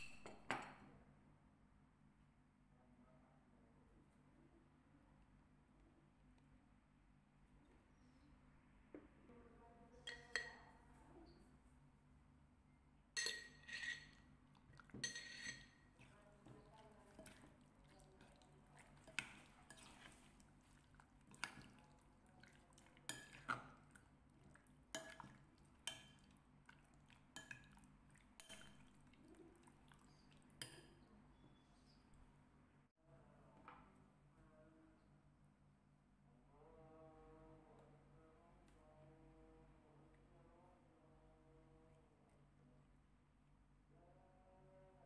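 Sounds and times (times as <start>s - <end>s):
metal spoon clinking glass bowl: 0.0s - 0.8s, 10.0s - 10.7s, 13.2s - 20.3s, 24.9s - 26.3s, 27.4s - 27.8s, 28.4s - 29.0s.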